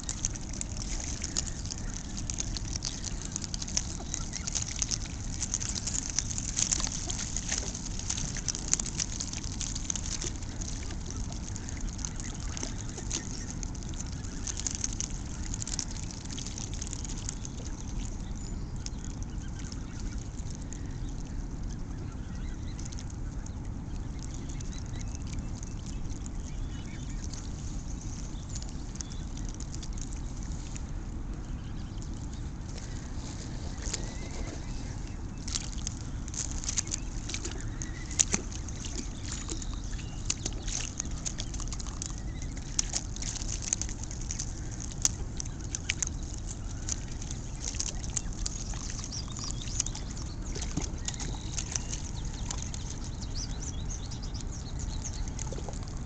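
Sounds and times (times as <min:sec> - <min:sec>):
geese splashing in water: 0:00.0 - 0:56.0
low rumble: 0:00.0 - 0:56.0.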